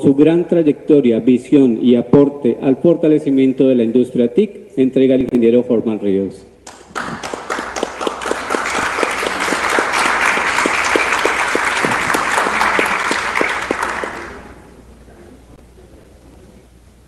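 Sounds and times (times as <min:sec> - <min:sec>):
sharp close claps: 0:06.6 - 0:14.4
audience applauding: 0:06.7 - 0:14.6.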